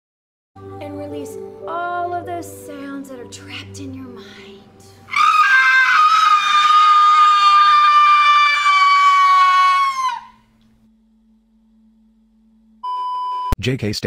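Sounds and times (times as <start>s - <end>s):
person screaming: 5.1s - 10.4s.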